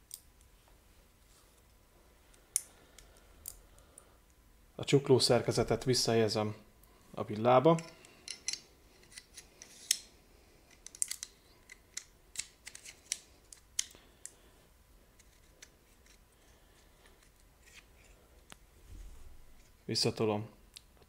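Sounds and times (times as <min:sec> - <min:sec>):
metallic clicks and clinks: 0:07.8 - 0:10.0.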